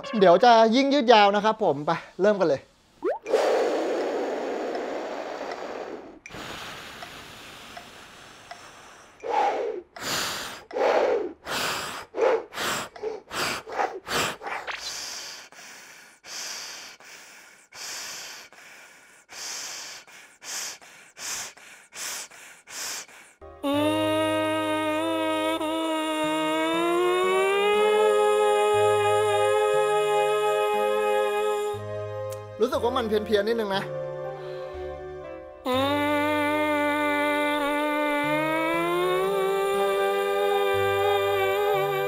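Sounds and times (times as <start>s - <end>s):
short sharp breaths through tube: 2.8s - 23.4s
person breathing forcefully: 3.3s - 23.4s.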